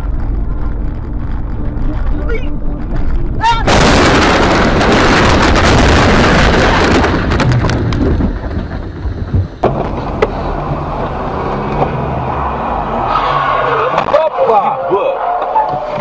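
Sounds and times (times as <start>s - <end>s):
car engine running: 0.0s - 16.0s
car crash crashing and rattling: 3.6s - 14.5s
scattered knocks and clicks: 7.3s - 10.3s.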